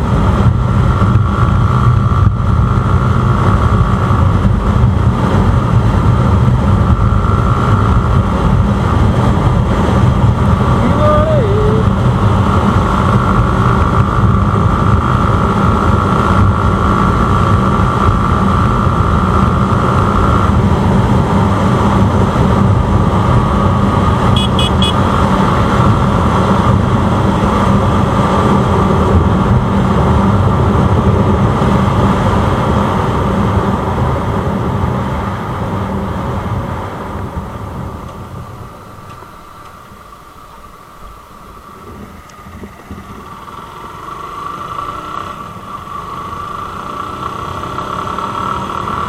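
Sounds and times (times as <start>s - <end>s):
engine running: 0.0s - 49.0s
vehicle road noise: 0.0s - 49.0s
high beeping: 24.4s - 25.0s.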